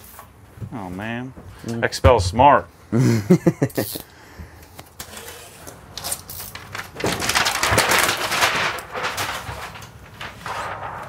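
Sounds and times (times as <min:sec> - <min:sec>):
plastic film rustling and crinkling: 0:05.0 - 0:11.0.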